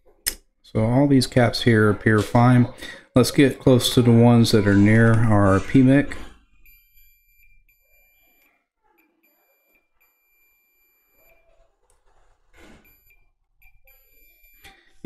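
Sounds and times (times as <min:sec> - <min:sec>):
multimeter beeper high tone: 0:06.6 - 0:08.5, 0:09.2 - 0:11.5, 0:12.8 - 0:14.7.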